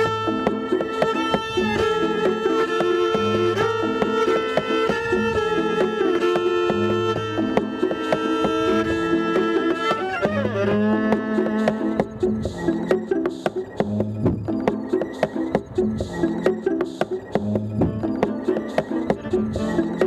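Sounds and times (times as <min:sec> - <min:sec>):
looped solo viola: 0:00.0 - 0:12.2.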